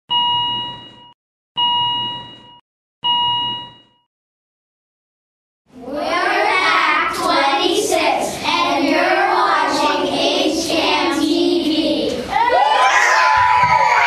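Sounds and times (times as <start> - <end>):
young boys singing together: 6.0 - 12.3.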